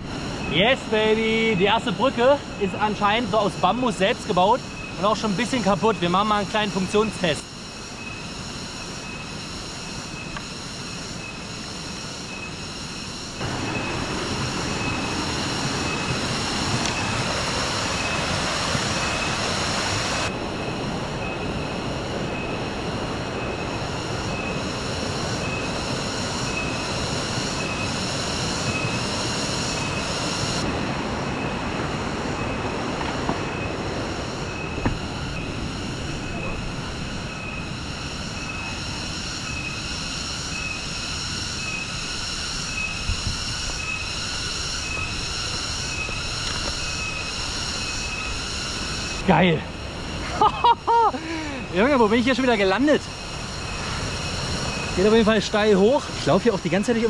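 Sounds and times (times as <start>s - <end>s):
insects droning shrilly: 0.0s - 57.0s
stream rushing: 13.4s - 27.8s.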